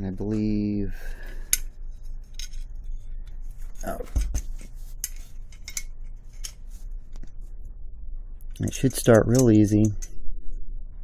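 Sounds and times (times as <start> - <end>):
small metal parts clinking: 1.4 - 3.1, 5.0 - 6.6.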